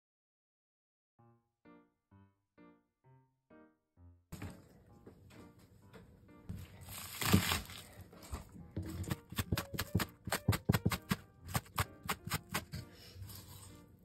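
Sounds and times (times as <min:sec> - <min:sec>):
light background music: 0:03.5 - 0:14.0
knife chopping on wooden board: 0:08.8 - 0:12.9.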